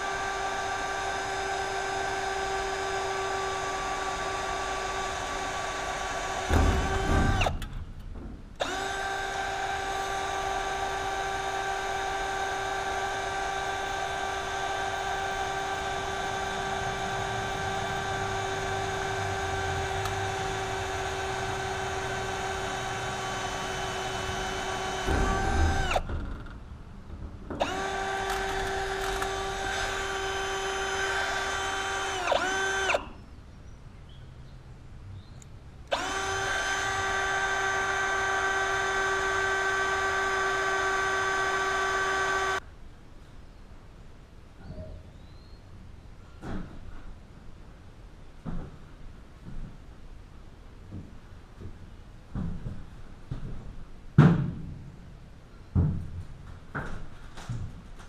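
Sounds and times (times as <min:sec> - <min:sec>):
power drill running on sheet metal: 0:00.0 - 0:07.7, 0:08.6 - 0:26.2, 0:27.6 - 0:33.1, 0:35.9 - 0:42.6.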